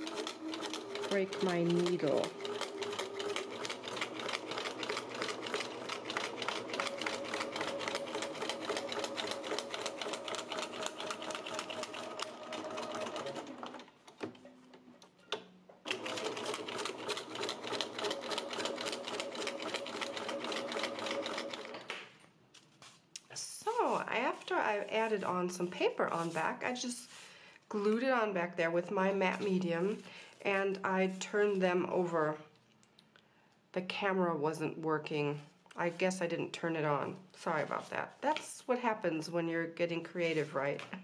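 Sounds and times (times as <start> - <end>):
sewing machine clicks: 0.0 - 13.9
sewing machine stitching: 0.0 - 14.2, 15.9 - 22.0.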